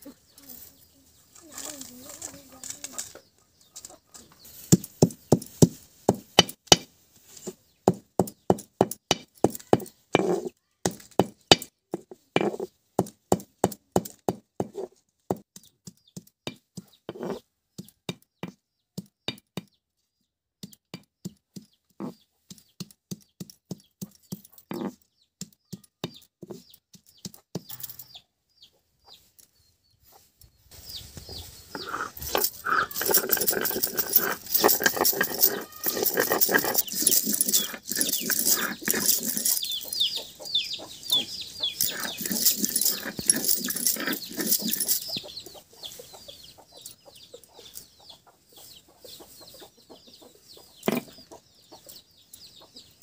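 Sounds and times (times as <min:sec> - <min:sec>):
stone pounding on grinding stone: 0:04.7 - 0:06.9, 0:07.8 - 0:19.7, 0:20.6 - 0:27.7, 0:31.7 - 0:40.1, 0:41.8 - 0:45.2, 0:50.9 - 0:51.2
stone scraping over slab: 0:09.7 - 0:10.5, 0:12.4 - 0:12.7, 0:17.1 - 0:17.4, 0:24.7 - 0:25.0, 0:31.7 - 0:40.0, 0:41.8 - 0:45.1, 0:50.9 - 0:51.1.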